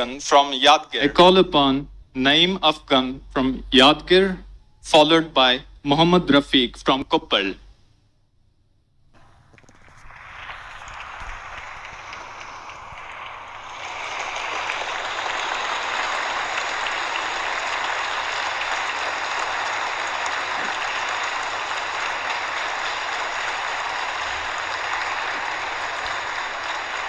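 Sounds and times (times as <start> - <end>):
audience applauding: 9.2 - 27.0.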